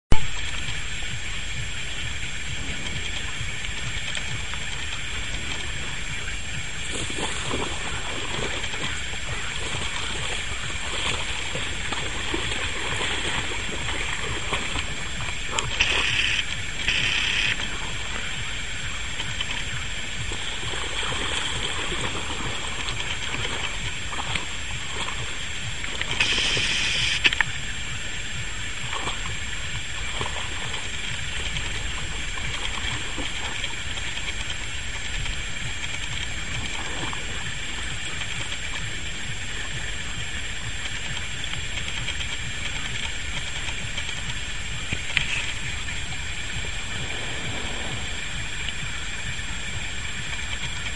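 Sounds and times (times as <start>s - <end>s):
water splash: 0.1s - 27.7s, 28.8s - 50.9s
high-pitched background chirr: 2.9s - 30.1s.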